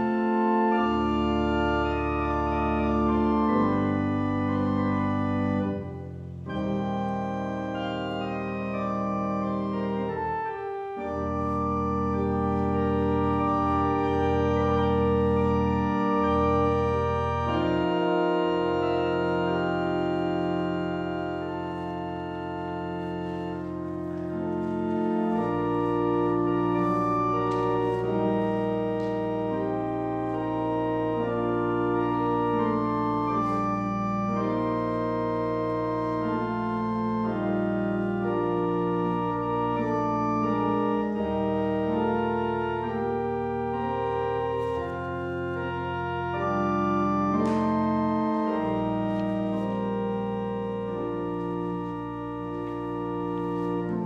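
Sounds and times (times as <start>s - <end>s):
organ playing sustained chords: 0.0s - 54.0s.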